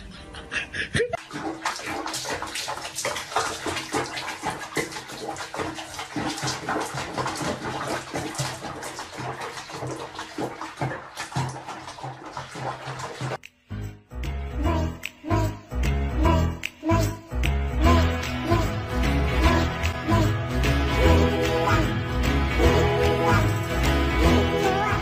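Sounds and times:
water splashing in a tub: 0:01.2 - 0:13.4.

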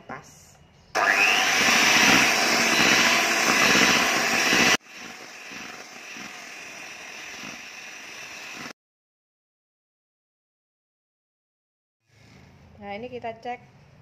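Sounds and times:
electric hand mixer whirring: 0:01.0 - 0:08.8.

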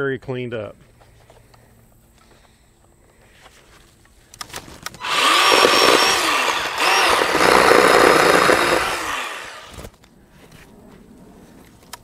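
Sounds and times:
chainsaw clicks: 0:04.3 - 0:09.9
electric chainsaw cutting limbs: 0:04.8 - 0:09.9.

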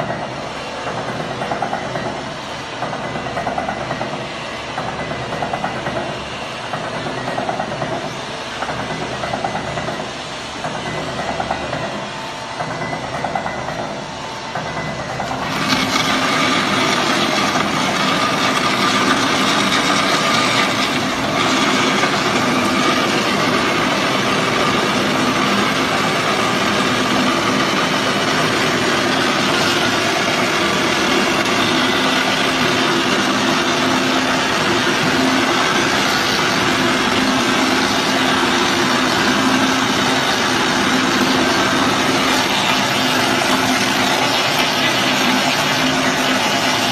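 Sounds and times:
tyre-cutting machine motor humming: 0:15.0 - 0:46.9.

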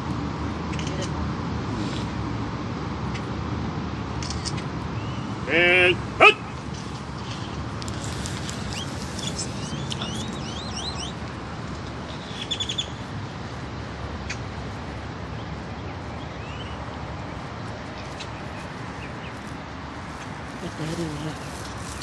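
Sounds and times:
small birds chirping: 0:07.2 - 0:11.4, 0:12.0 - 0:13.1, 0:15.2 - 0:22.0.

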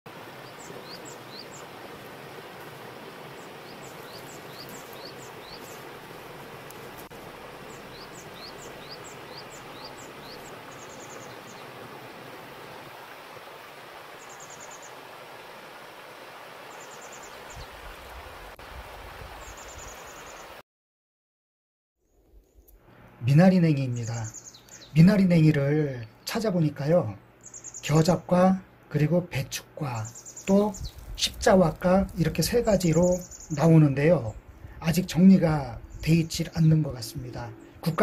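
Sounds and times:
stream rushing over rocks: 0:00.1 - 0:20.6
bird chirping and trilling: 0:03.3 - 0:05.9, 0:07.6 - 0:11.7, 0:23.9 - 0:25.0, 0:27.4 - 0:28.0, 0:29.9 - 0:31.1, 0:32.1 - 0:34.0.

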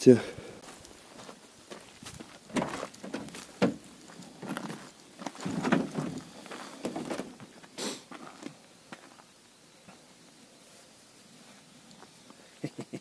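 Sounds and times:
footsteps on gravel: 0:00.6 - 0:09.3
van door unlatching and opening: 0:02.5 - 0:03.8, 0:05.4 - 0:06.2
clicks and knocks in cargo area: 0:05.4 - 0:06.2.

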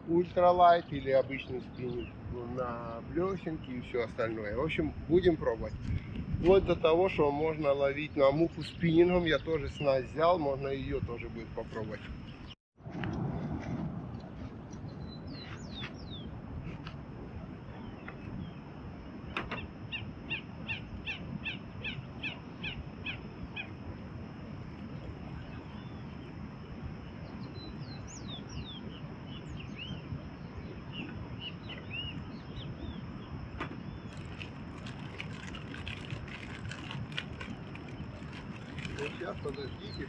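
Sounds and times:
bird chirps: 0:14.9 - 0:16.3, 0:27.3 - 0:30.0.

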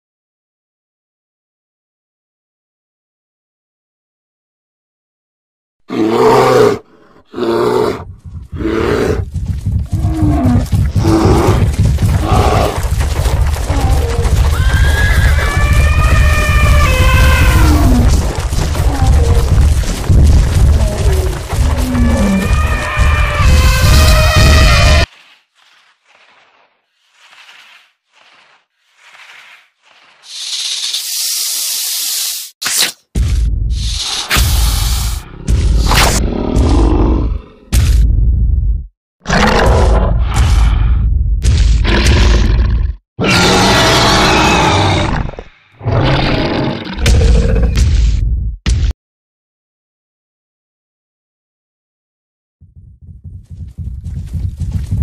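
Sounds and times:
deep animal roars: 0:05.9 - 0:14.5, 0:15.4 - 0:25.1, 0:35.2 - 0:37.7, 0:39.3 - 0:40.9, 0:41.8 - 0:47.8
rumble of running hooves: 0:07.9 - 0:30.2, 0:52.6 - 0:55.0
snake hissing: 0:28.8 - 0:32.6, 0:33.8 - 0:35.3.

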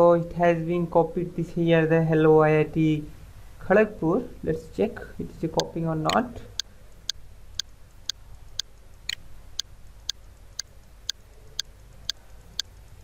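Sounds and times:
steady clicking: 0:05.6 - 0:13.0.

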